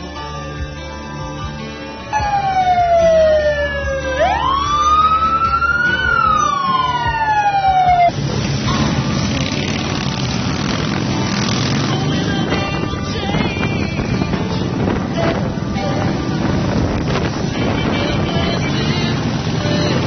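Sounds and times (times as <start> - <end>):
siren wailing: 2.1 - 8.2
motorcycles rushing noise: 2.2 - 20.0.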